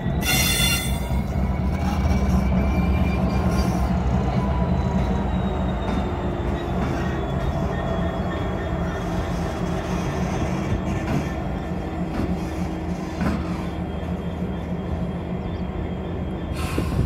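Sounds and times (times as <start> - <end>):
diesel locomotive engine throbbing: 0.0 - 17.0
wheels squealing on rails: 0.0 - 17.0.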